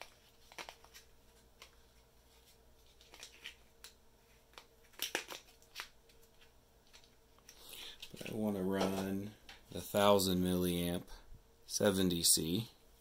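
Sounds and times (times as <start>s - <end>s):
faint steady hum: 0.0s - 13.0s
plastic parts clicking and rustling: 2.8s - 9.6s.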